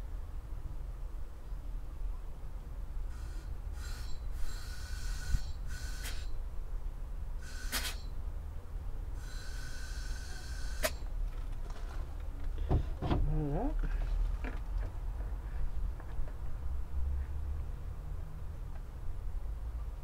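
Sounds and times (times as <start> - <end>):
compressed air blasts: 3.1 - 6.3, 7.4 - 8.1.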